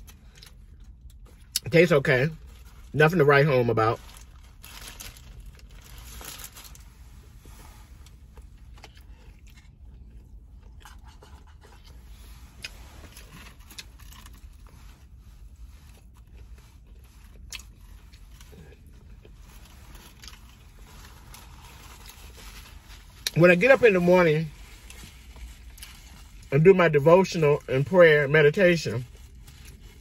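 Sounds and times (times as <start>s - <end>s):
paper wrapper crinkling: 3.8s - 6.9s, 19.5s - 26.6s
person chewing: 8.2s - 14.4s, 16.0s - 19.4s.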